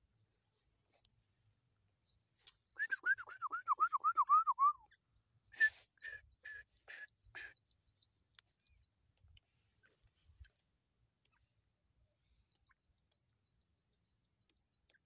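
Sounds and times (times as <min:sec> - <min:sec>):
faint high-pitched peeps: 0:00.0 - 0:08.9, 0:12.2 - 0:15.0
francolin calling: 0:00.1 - 0:05.0, 0:05.6 - 0:08.9.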